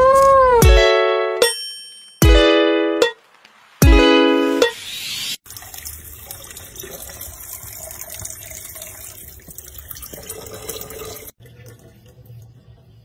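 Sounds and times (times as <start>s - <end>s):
faucet running into sink: 5.4s - 13.0s.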